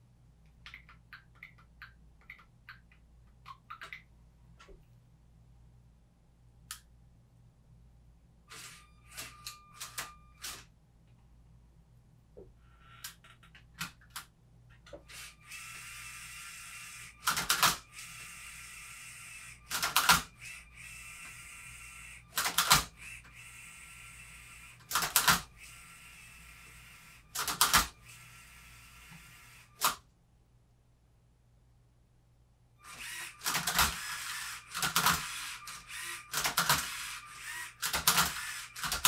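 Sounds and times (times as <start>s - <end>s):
robot motors whirring: 15.1s - 29.8s, 32.8s - 39.0s.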